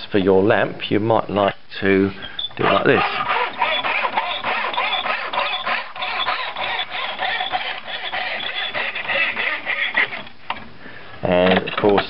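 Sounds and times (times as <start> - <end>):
hand saw cutting wood: 2.6 - 10.3.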